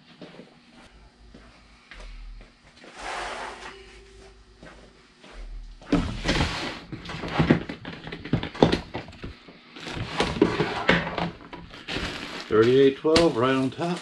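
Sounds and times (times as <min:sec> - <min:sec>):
plastic rustling: 0:06.2 - 0:14.0.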